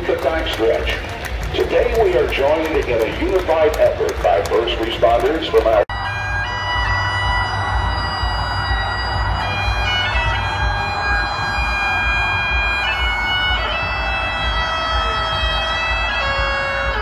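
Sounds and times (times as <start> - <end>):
bagpipes playing slow tune: 5.9 - 17.0.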